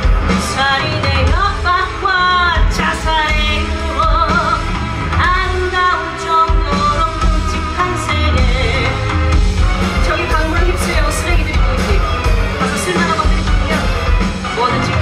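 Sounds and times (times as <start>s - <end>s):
band accompaniment with steady beat: 0.0s - 15.0s
woman singing: 0.2s - 12.0s.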